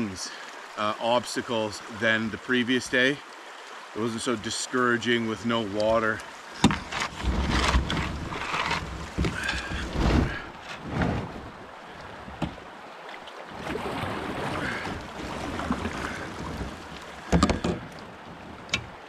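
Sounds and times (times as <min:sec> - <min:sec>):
paddle strokes splashing water: 0:00.0 - 0:19.0
running creek water: 0:00.0 - 0:19.0
paddle knocking on hull: 0:06.6 - 0:11.5, 0:12.1 - 0:12.7, 0:14.1 - 0:19.0.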